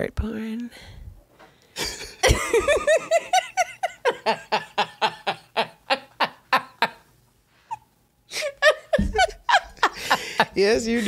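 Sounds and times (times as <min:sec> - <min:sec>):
woman laughing hard: 0:01.8 - 0:07.1, 0:07.7 - 0:10.6.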